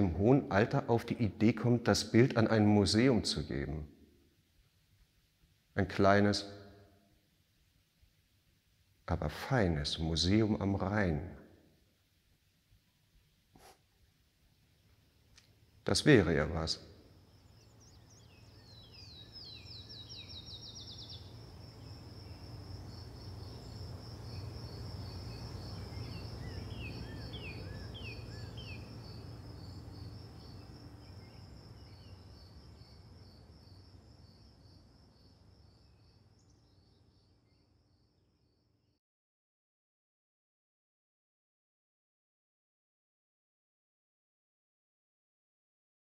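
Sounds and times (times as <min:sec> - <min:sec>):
bird chirps: 0:16.4 - 0:22.6, 0:23.3 - 0:38.6
cricket trilling: 0:17.0 - 0:38.6.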